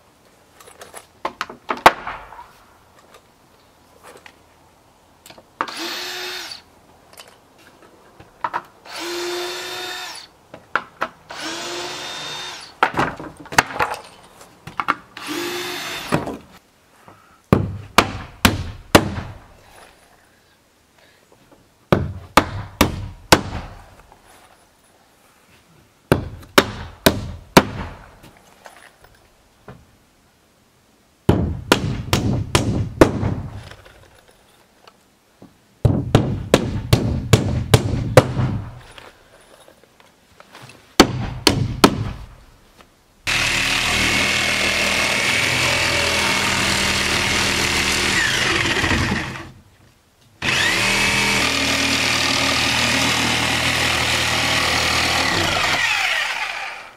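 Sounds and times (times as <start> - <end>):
power tool running: 43.3 - 49.5, 50.4 - 56.9.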